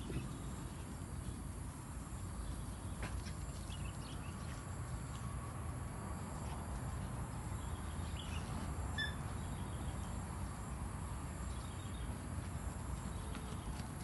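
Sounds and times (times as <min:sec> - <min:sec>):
faint bird chirps: 0:07.6 - 0:10.1.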